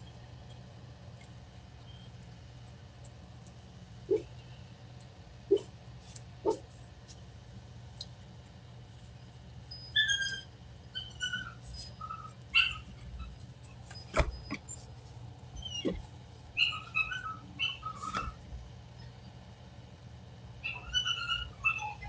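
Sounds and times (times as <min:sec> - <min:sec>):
dog whining: 0:04.1 - 0:04.3, 0:05.5 - 0:05.7, 0:09.8 - 0:14.7, 0:15.6 - 0:18.4, 0:20.6 - 0:22.0.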